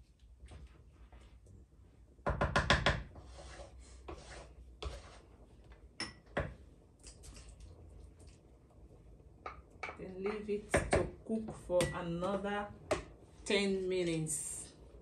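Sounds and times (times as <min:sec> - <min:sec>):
wooden spoon scraping pot: 0:03.0 - 0:05.7.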